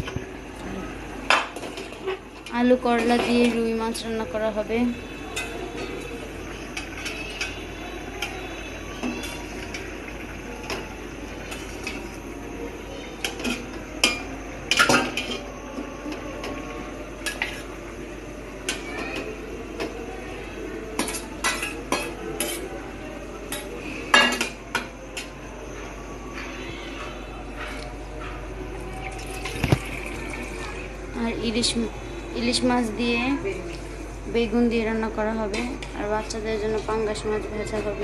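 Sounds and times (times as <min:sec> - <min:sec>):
low background noise: 0:00.0 - 0:38.0
metal pots and utensils clinking: 0:05.2 - 0:12.3, 0:13.2 - 0:17.8, 0:21.0 - 0:22.8, 0:23.4 - 0:25.4.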